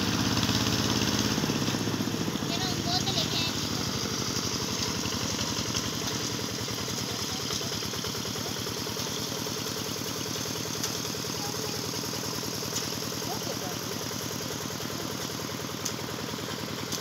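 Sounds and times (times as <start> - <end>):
small engine idling: 0.0 - 17.0.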